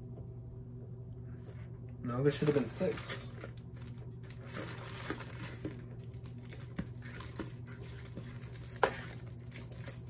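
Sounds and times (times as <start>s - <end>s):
steady low hum: 0.0s - 10.0s
packaging rustling and crinkling: 2.3s - 10.0s.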